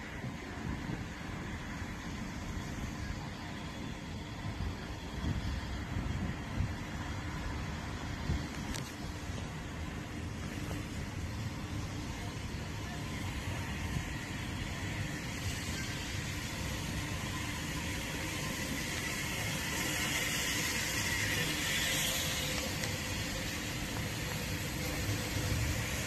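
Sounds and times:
locomotive low rumble: 0.0 - 26.0
steam hissing: 0.0 - 26.0.

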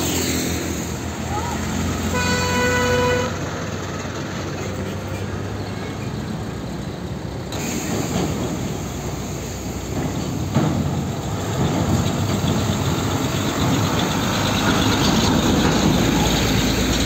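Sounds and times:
truck traffic rumble: 0.0 - 17.0
truck horn: 1.9 - 3.6.

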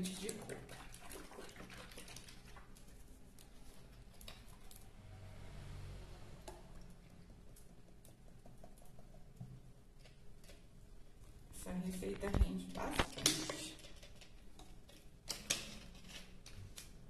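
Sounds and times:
milk pouring into plastic jar: 0.0 - 4.8.

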